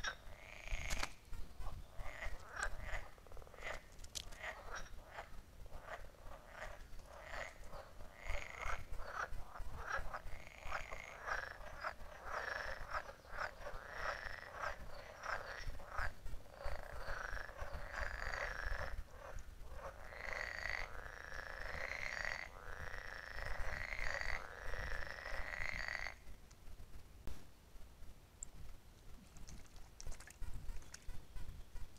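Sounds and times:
frogs croaking: 0.0s - 26.4s.

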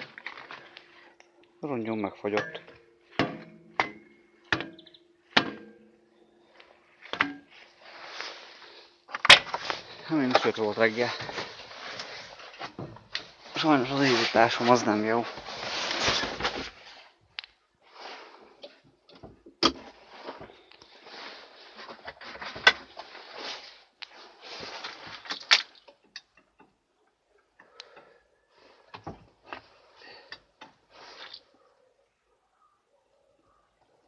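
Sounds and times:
rustling and handling noise: 0.0s - 31.9s
sharp knocks: 3.2s - 5.8s.

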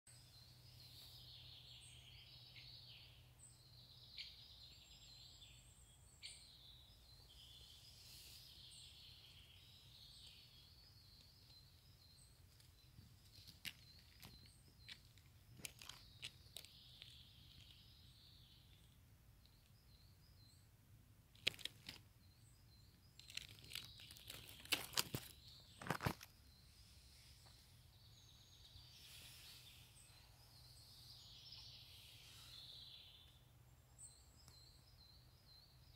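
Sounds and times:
birds chirping: 0.1s - 35.9s
twigs and leaves crackling: 9.9s - 19.0s, 21.3s - 22.1s, 23.0s - 26.4s.

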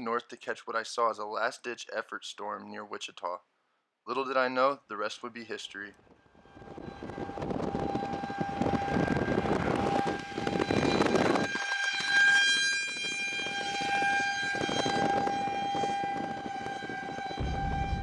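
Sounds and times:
siren-like tone: 6.2s - 18.0s
rushing noise: 17.1s - 18.0s.

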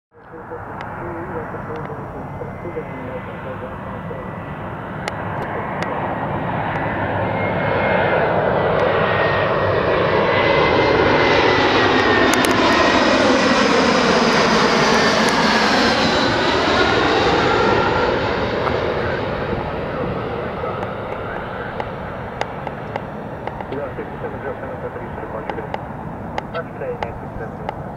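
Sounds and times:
jet airliner passing overhead: 0.1s - 27.9s.

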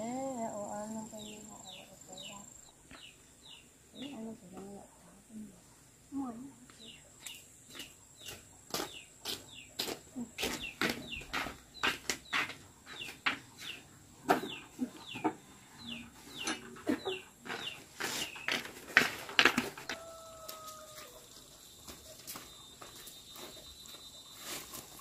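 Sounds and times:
chickens clucking and peeping: 6.8s - 22.8s.

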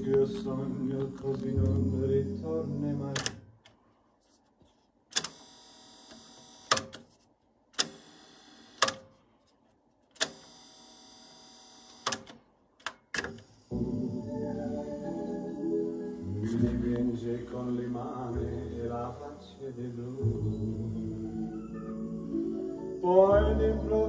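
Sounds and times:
music playback: 0.0s - 3.4s, 13.7s - 24.0s.

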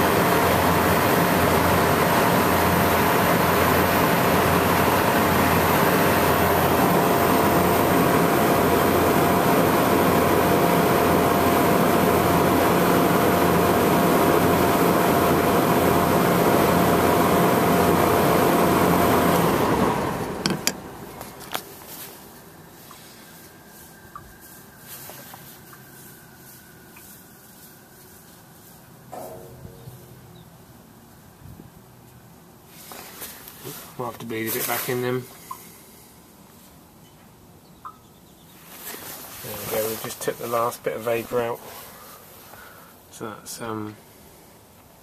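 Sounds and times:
compressor humming: 0.0s - 36.4s.

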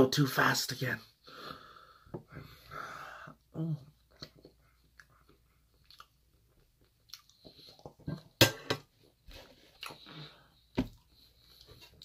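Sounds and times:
chewing: 4.1s - 8.2s.

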